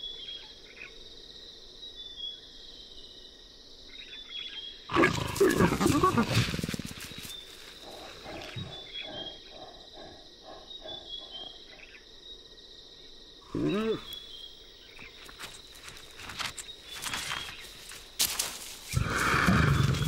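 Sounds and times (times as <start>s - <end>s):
loud wild animal call: 4.9s - 11.9s, 13.4s - 14.4s, 18.9s - 20.0s
soft repeated calls: 4.9s - 12.0s, 13.4s - 20.0s
high insect buzz: 4.9s - 20.0s.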